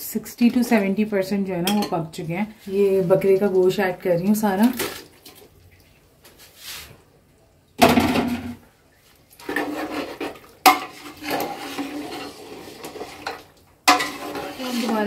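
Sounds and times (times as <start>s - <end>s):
metal pot and utensil clattering: 1.6s - 2.1s, 9.4s - 15.0s
scraping in pot: 9.4s - 15.0s.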